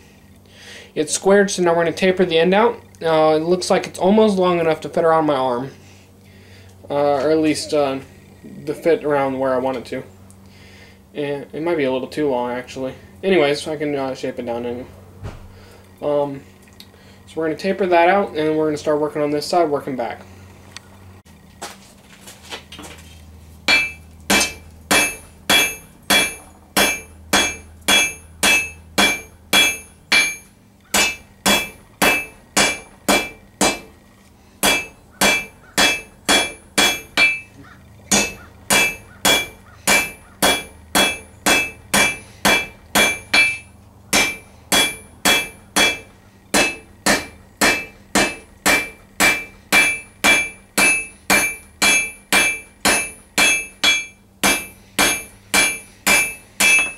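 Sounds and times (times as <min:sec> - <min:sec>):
hammer ringing on anvil: 0:23.7 - 0:33.9, 0:34.6 - 0:56.9.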